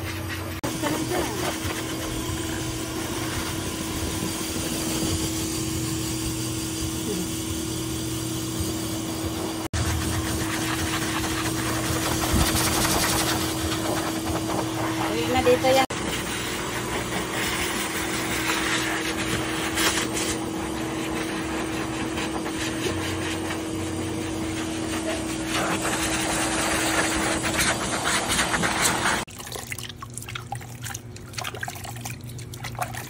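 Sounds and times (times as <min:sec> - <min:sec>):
pet blower dryer running: 0:00.0 - 0:29.3
water trickling and splashing: 0:29.3 - 0:33.0.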